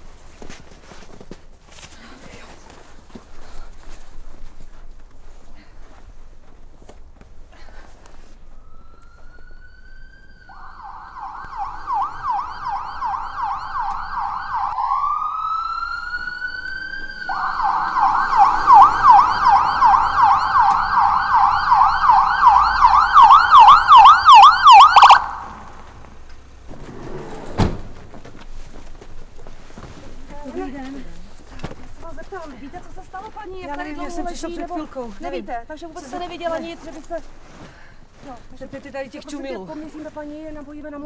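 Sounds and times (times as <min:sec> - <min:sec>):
ambulance siren wailing and yelping: 0:08.5 - 0:25.8.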